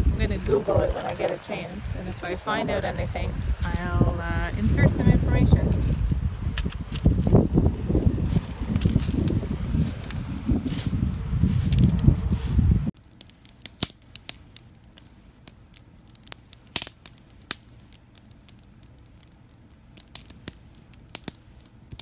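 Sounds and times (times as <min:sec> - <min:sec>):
wind rumble on microphone: 0:00.0 - 0:13.0
wood fire crackling and popping: 0:00.0 - 0:22.0.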